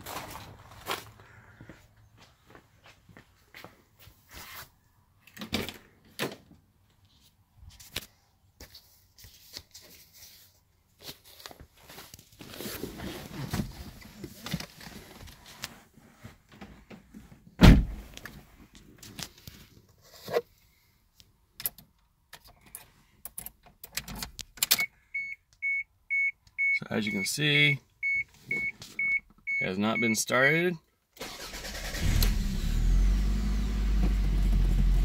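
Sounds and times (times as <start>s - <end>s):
rustling: 7.1s - 16.5s
car door shutting thunk: 17.6s - 18.0s
car door clicks and bumps: 17.6s - 18.1s.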